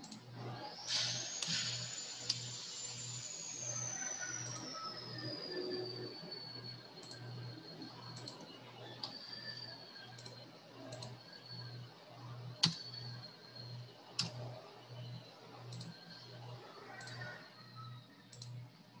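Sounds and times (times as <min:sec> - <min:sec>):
computer mouse clicks: 0:07.0 - 0:07.2, 0:08.2 - 0:08.4, 0:10.2 - 0:11.2, 0:12.6 - 0:12.8, 0:14.2 - 0:14.4, 0:15.7 - 0:16.0, 0:17.0 - 0:17.4, 0:18.3 - 0:18.6.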